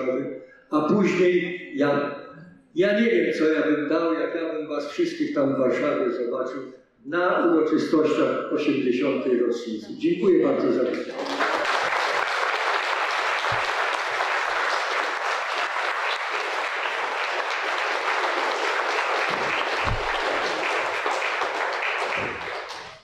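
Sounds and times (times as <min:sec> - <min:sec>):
audience applauding: 0:10.8 - 0:23.0.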